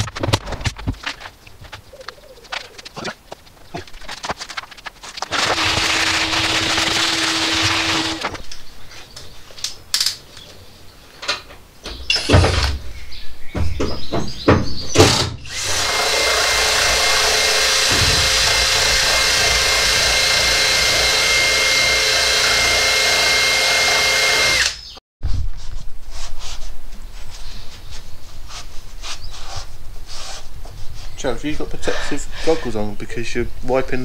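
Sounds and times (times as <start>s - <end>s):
power drill whining: 5.3s - 8.4s, 15.5s - 24.9s.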